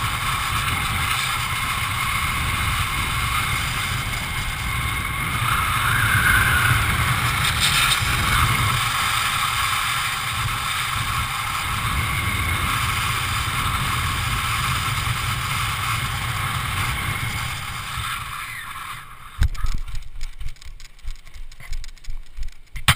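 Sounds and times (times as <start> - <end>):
wind rushing over microphone: 0.0 - 21.2
knocks and rustles: 19.4 - 22.9.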